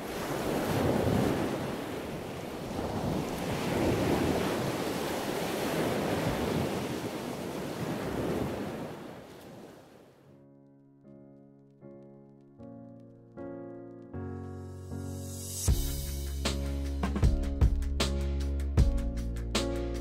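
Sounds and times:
wind rumbling on microphone: 0:00.0 - 0:09.7
waves washing in: 0:00.0 - 0:10.1
piano music: 0:10.3 - 0:20.0.

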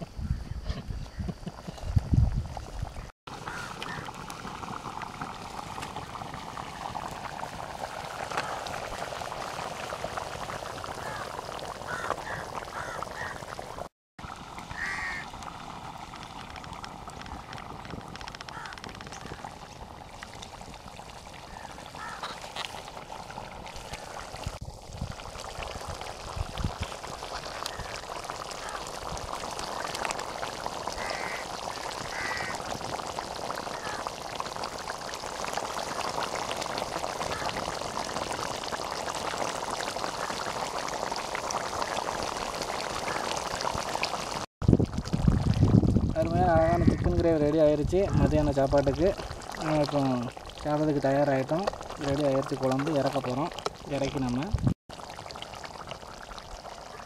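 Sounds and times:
gravy bubbling in a pot: 0:00.7 - 0:57.0
firewood crackling: 0:03.3 - 0:46.2, 0:48.4 - 0:56.9.

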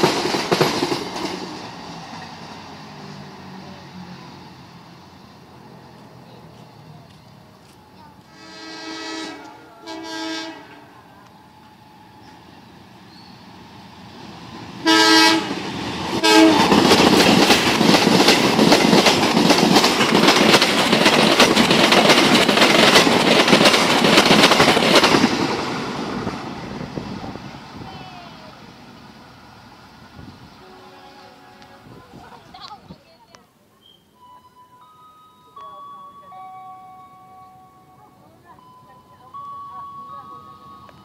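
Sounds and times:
train wheels clattering on rails: 0:00.0 - 0:03.1, 0:15.6 - 0:26.6
train horn blasts: 0:08.3 - 0:11.0, 0:14.8 - 0:15.6, 0:16.2 - 0:16.8, 0:30.6 - 0:32.0.

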